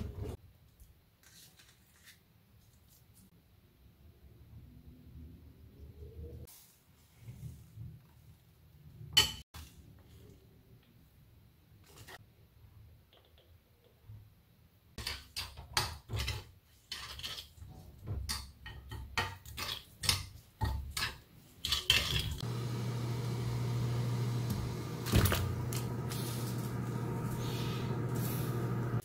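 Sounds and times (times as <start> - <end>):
pot of water hissing: 22.4 - 29.0.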